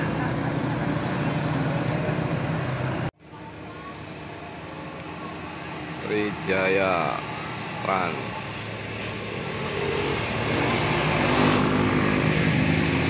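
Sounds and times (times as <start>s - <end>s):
motorcycle passing: 0.0s - 3.1s, 9.1s - 13.0s
bus engine: 0.0s - 13.0s
car engine passing: 5.6s - 13.0s.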